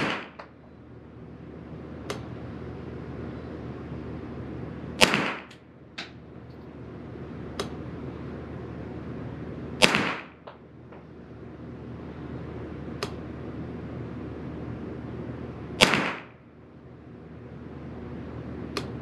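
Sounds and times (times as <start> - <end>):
rifle shots with echo: 0.0 - 0.4, 5.0 - 5.6, 9.8 - 10.4, 15.8 - 16.4.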